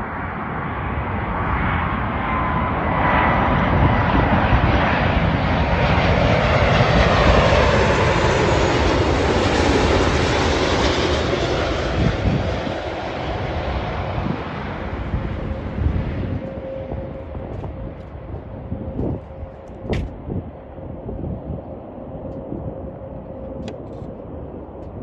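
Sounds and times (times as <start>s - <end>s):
jet airliner roar passing low: 0.0s - 25.0s
faint whine dropping in pitch: 14.2s - 25.0s.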